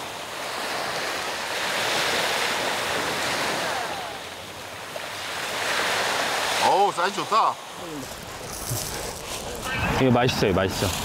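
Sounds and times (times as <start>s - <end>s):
waves washing onto pebble beach: 0.0s - 11.0s.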